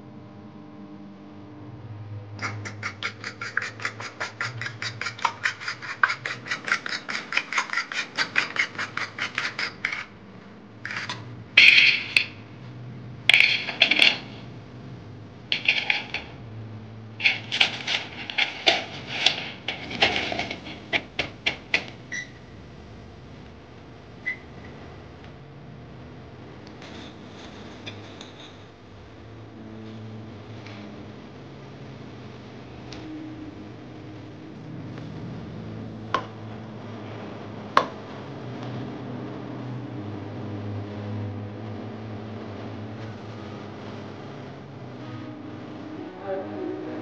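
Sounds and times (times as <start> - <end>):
fork beating eggs in metal bowl: 2.4 - 10.2, 10.9 - 12.3, 17.2 - 22.2
masher crushing walnuts in pot: 2.4 - 10.2, 10.9 - 12.3, 15.5 - 16.3, 17.2 - 22.0
metal scrapes: 2.4 - 10.2, 10.8 - 12.4, 15.5 - 16.4, 17.2 - 22.3.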